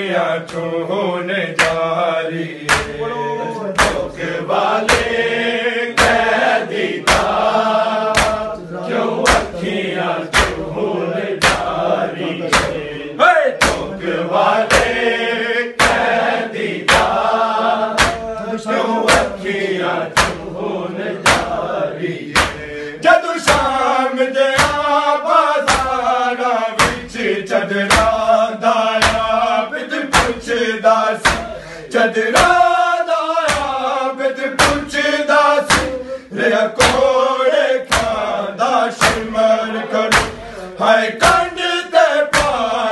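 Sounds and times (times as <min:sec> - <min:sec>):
men chanting: 0:00.0 - 0:42.9
bare-handed chest-beating slaps: 0:00.5 - 0:00.7, 0:01.6 - 0:01.9, 0:02.6 - 0:03.0, 0:03.8 - 0:04.2, 0:04.8 - 0:05.3, 0:06.0 - 0:08.6, 0:09.2 - 0:10.8, 0:11.4 - 0:11.9, 0:12.5 - 0:12.8, 0:13.6 - 0:15.2, 0:15.8 - 0:20.6, 0:21.2 - 0:21.7, 0:22.3 - 0:22.7, 0:23.4 - 0:23.8, 0:24.5 - 0:25.0, 0:25.6 - 0:26.1, 0:26.8 - 0:27.3, 0:27.9 - 0:28.3, 0:29.0 - 0:29.5, 0:30.1 - 0:30.6, 0:31.2 - 0:31.7, 0:32.3 - 0:32.7, 0:33.4 - 0:33.8, 0:34.6 - 0:36.0, 0:36.7 - 0:37.2, 0:37.9 - 0:38.4, 0:39.0 - 0:39.4, 0:40.1 - 0:40.5, 0:41.2 - 0:41.6, 0:42.3 - 0:42.8.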